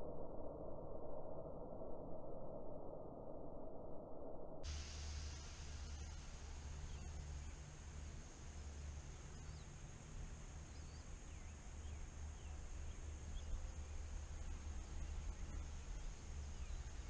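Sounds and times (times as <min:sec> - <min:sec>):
faint bird chirps: 0:04.7 - 0:17.0.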